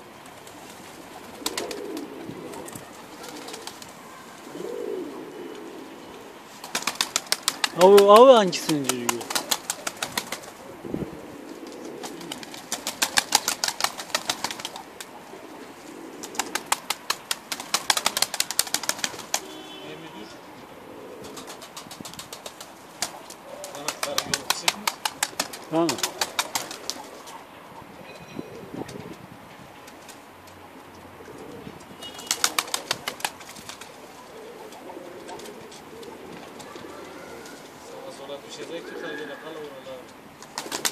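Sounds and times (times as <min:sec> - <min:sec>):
pigeon wings flapping: 0:00.2 - 0:04.0, 0:06.6 - 0:10.7, 0:11.5 - 0:15.2, 0:16.1 - 0:19.8, 0:21.2 - 0:27.3, 0:32.1 - 0:34.0, 0:34.7 - 0:37.6, 0:40.4 - 0:40.9
pigeons cooing: 0:00.6 - 0:29.2, 0:31.0 - 0:40.9
sharp wing claps: 0:06.6 - 0:10.5, 0:12.0 - 0:14.8, 0:16.2 - 0:19.6, 0:21.4 - 0:27.0, 0:32.2 - 0:33.9.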